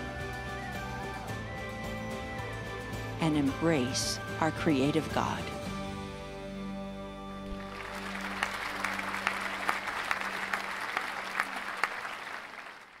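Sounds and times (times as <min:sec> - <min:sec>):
soft background music: 0:00.0 - 0:10.8
people clapping: 0:07.5 - 0:13.0.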